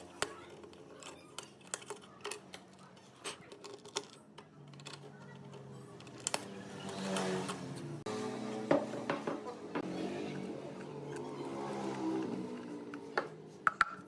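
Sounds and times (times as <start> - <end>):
plastic parts clicking together: 0.0 - 7.6.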